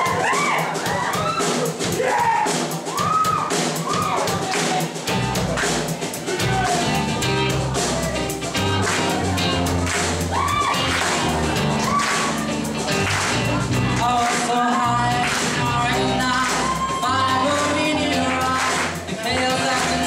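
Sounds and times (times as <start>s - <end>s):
drums beating: 0.0s - 20.0s
bass guitar: 4.4s - 20.0s
person singing: 10.3s - 20.0s.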